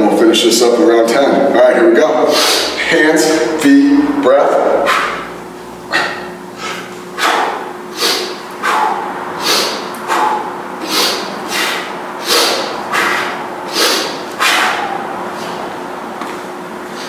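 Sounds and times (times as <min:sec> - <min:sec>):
man breathing sharply: 0:02.3 - 0:02.8, 0:05.9 - 0:15.7.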